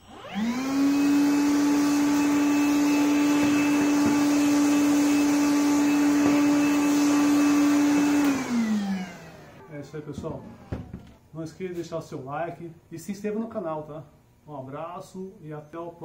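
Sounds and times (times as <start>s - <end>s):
vacuum motor whining as blower: 0.0s - 11.2s.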